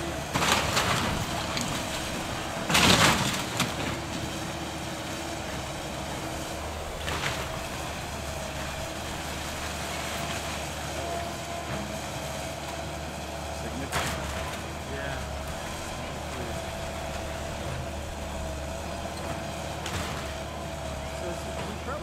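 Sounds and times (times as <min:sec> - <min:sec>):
excavator engine whine: 0:00.0 - 0:22.0
wood breaking and debris falling: 0:00.3 - 0:10.7.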